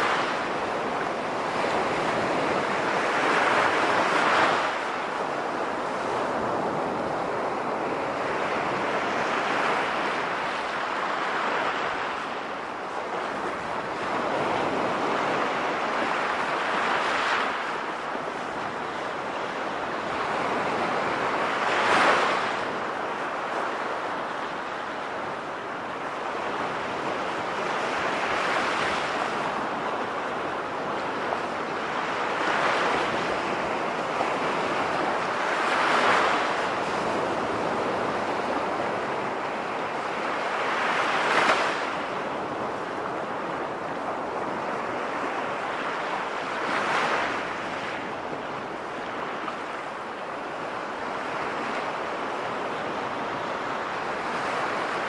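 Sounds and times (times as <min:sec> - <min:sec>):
sea waves breaking: 0:00.0 - 0:55.0.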